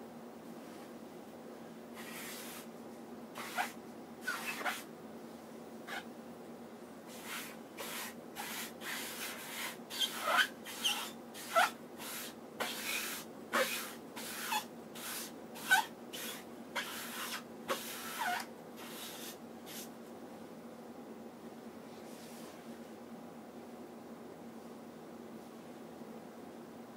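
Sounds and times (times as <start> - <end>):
sponge rubbing on canvas: 2.0 - 2.7, 3.4 - 4.9, 7.1 - 19.9
sponge squeaks: 3.4 - 4.8, 7.2 - 19.9.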